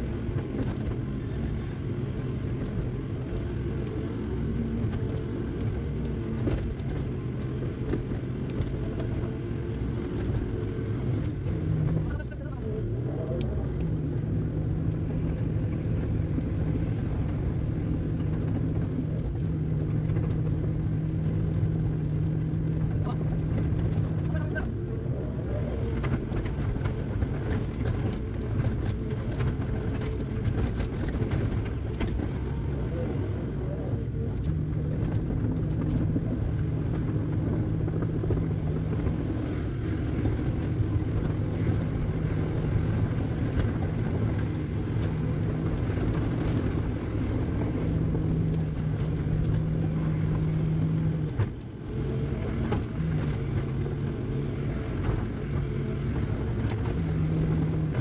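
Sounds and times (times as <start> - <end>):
excavator diesel engine: 0.0 - 58.0.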